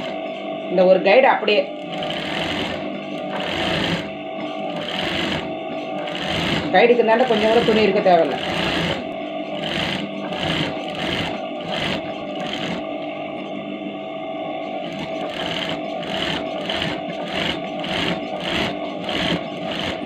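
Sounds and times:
sewing machine stitching: 1.8s - 4.1s, 4.7s - 12.8s, 14.8s - 20.0s.

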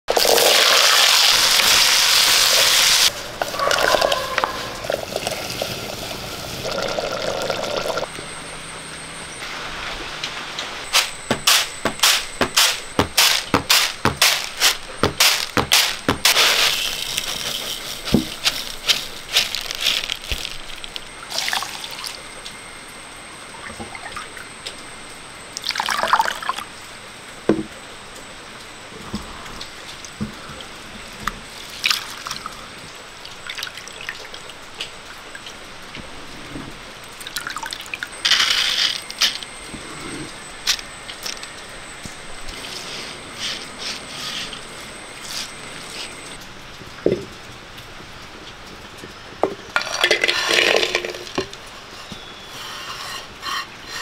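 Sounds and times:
water splashing rinsing rice: 0.1s - 3.1s
rice tossed on winnowing tray: 11.0s - 21.0s, 38.2s - 39.4s
shallots tumbling into metal pan: 11.0s - 21.0s, 49.8s - 52.3s.

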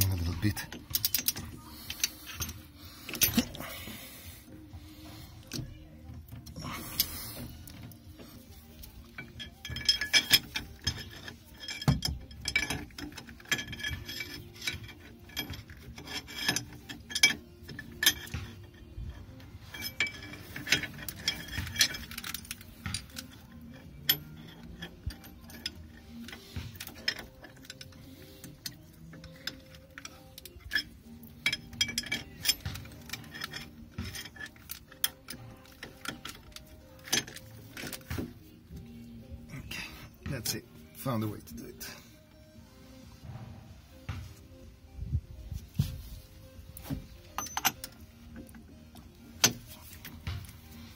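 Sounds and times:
metal tools clinking on steel: 0.0s - 42.4s, 45.4s - 50.9s
ratchet wrench clicking: 8.8s - 38.4s.

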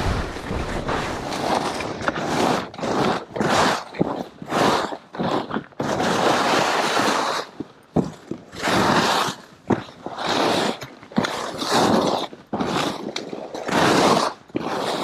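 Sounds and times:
skis scraping through snow: 0.0s - 15.0s.

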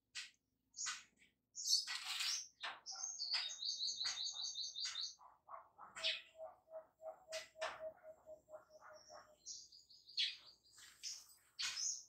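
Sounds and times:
birds chirping: 1.6s - 12.0s.

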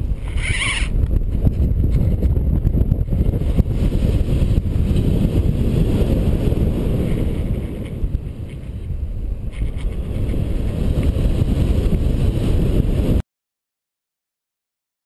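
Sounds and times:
wind noise on microphone: 0.0s - 13.2s.

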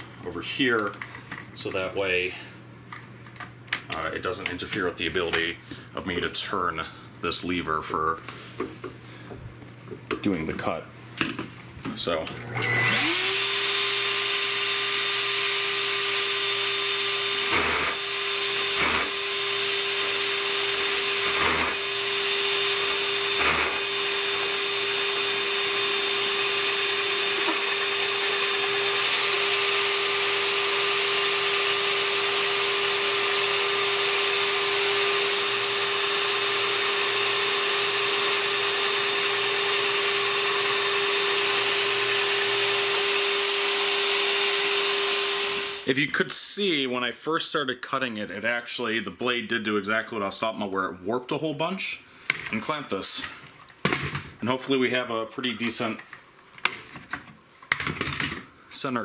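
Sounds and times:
shop vacuum running: 11.8s - 46.0s
drill press whining: 12.3s - 45.9s.

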